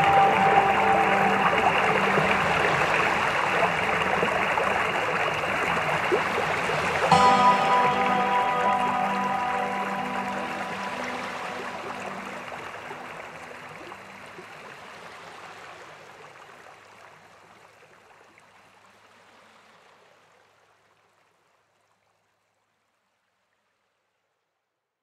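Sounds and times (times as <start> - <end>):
waves washing on shore: 0.0 - 16.3
faint low held tone: 7.1 - 14.0.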